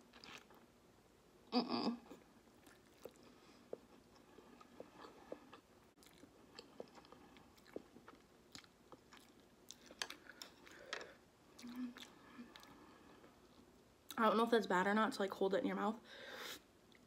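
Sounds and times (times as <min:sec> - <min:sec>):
quiet chewing with mouth clicks: 0:02.0 - 0:13.9.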